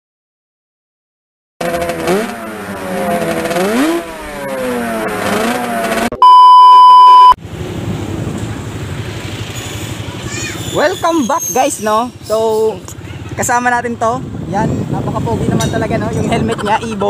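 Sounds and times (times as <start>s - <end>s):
motorcycle being ridden: 1.6s - 6.2s, 7.4s - 17.0s
motorcycle engine revving: 1.6s - 6.2s, 7.4s - 11.2s
steady test-tone beep: 6.2s - 7.4s
wind on the microphone: 13.7s - 17.0s.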